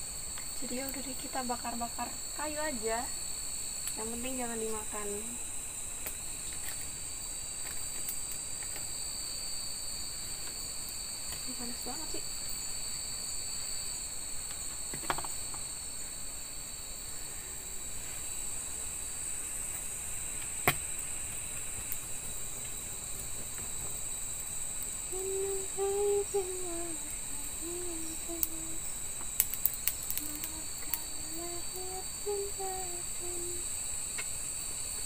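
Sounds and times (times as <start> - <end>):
crickets chirping: 0.0 - 35.0
campfire crackling: 0.1 - 35.0
person humming: 25.1 - 28.9, 30.2 - 33.7.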